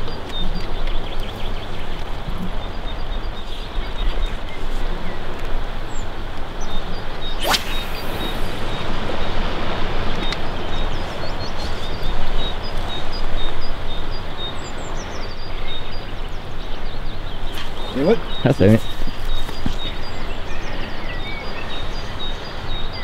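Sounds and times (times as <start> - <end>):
wind on microphone: 0.0 - 22.2
small birds chirping: 0.0 - 23.0
sharp swish: 7.4 - 9.1.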